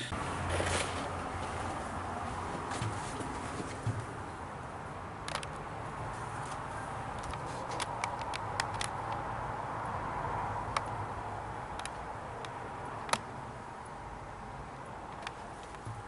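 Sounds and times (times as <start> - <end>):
sharp clicks and light taps: 5.2 - 5.6, 6.5 - 9.2, 10.7 - 11.0, 11.8 - 13.3, 15.1 - 16.0.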